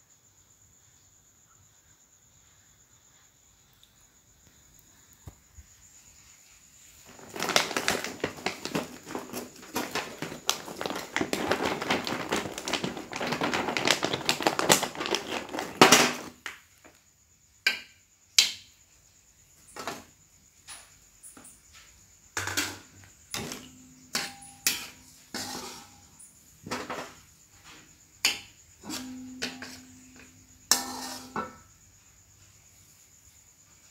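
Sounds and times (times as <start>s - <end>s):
crackers frying in hot oil: 6.8s - 17.0s, 19.5s - 21.6s, 22.3s - 31.8s
metal skimmer scraping wok: 22.4s - 27.2s, 28.3s - 31.7s.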